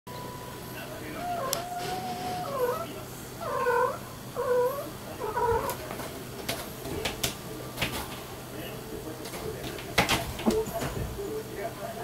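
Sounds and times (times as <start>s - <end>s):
cat calling: 1.2s - 5.8s.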